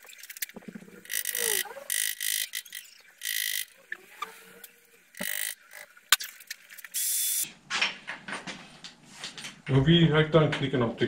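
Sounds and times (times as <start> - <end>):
short hissing bursts: 7.0 - 7.4.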